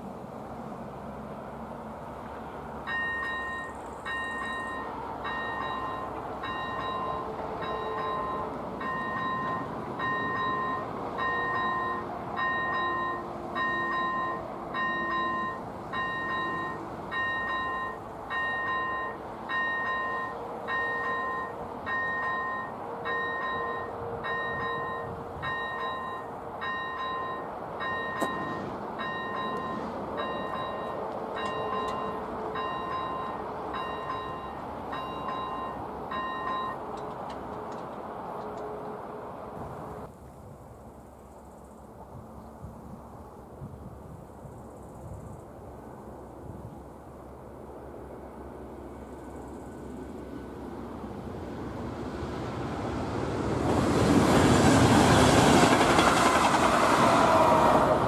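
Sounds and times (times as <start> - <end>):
level-crossing warning bell: 2.8 - 38.9.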